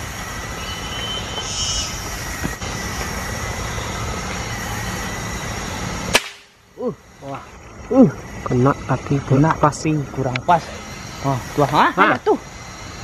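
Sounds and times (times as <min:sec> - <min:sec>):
background hiss: 0:00.0 - 0:13.0
sharp gunshot: 0:06.1 - 0:06.6.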